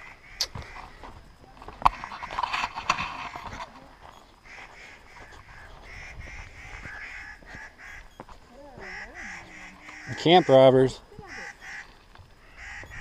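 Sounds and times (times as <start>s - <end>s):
birds calling harsh notes: 3.1s - 13.0s.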